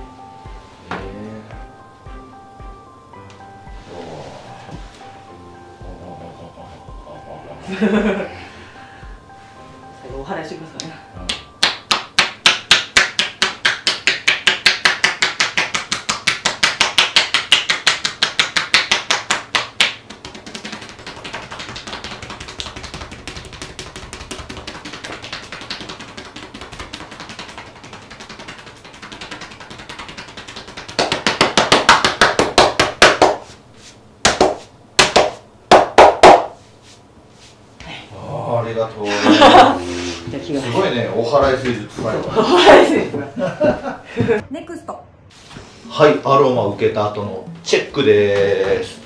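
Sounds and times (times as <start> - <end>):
hands percussing a back: 11.3 - 33.5, 34.2 - 36.6
hands rubbing skin: 12.0 - 35.4, 36.4 - 37.6.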